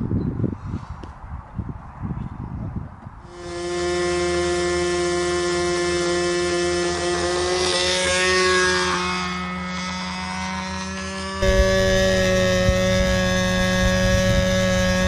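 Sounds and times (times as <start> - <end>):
model plane engine high pitch: 3.3 - 15.0.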